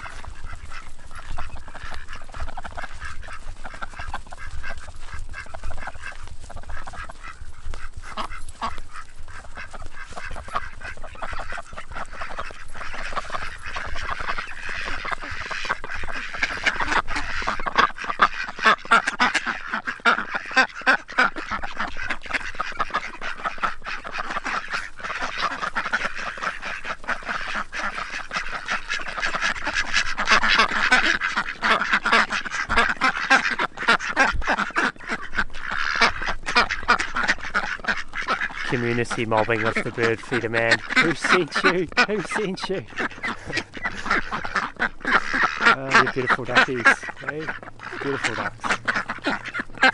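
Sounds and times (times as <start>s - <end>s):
ducks quacking: 0.0s - 49.9s.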